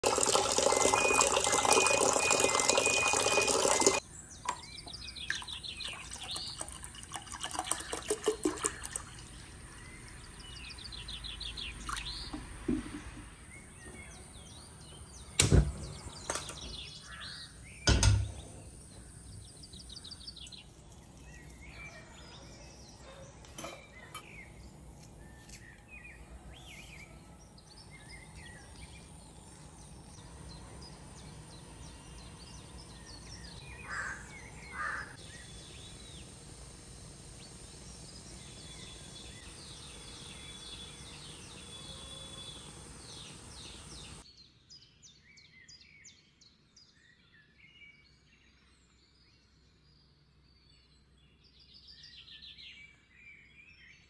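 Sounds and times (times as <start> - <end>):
tap water running into saucepan: 0.0 - 4.6, 5.3 - 9.3
birds chirping: 0.0 - 46.4.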